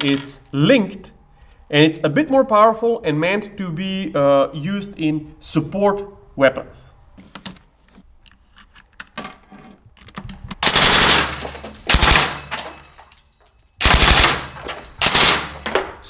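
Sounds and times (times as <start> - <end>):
machine gun bursts: 10.6 - 12.6, 13.8 - 15.8.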